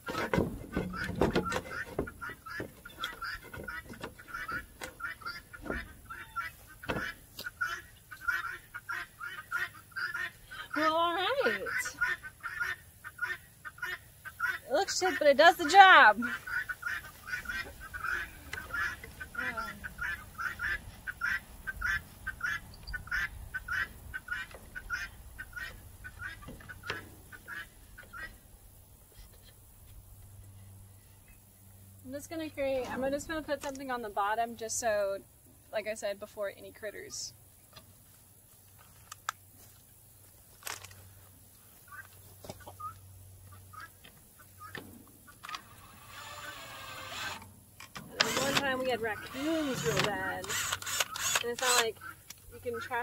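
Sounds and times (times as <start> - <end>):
poultry squawking: 0.0 - 28.5, 41.8 - 47.4, 48.1 - 53.0
chickens clucking: 0.0 - 30.2, 41.6 - 53.0.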